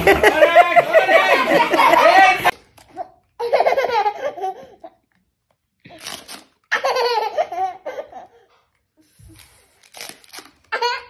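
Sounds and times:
toddler laughing: 0.0 - 5.0, 6.7 - 8.5, 10.7 - 11.0.

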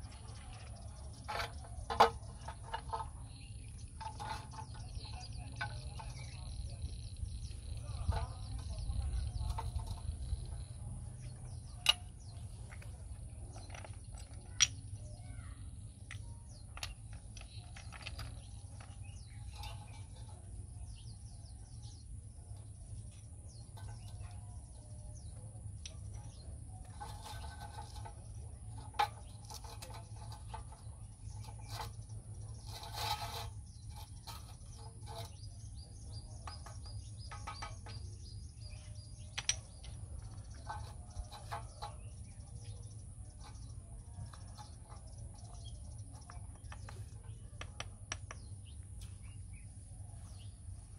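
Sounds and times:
birds chirping: 0.0 - 50.9
steady low rumble: 0.0 - 50.9
stone strips clicking and tapping: 11.8 - 15.0, 16.0 - 20.3, 38.7 - 42.0, 43.1 - 49.2
short scrapes: 29.1 - 35.8.

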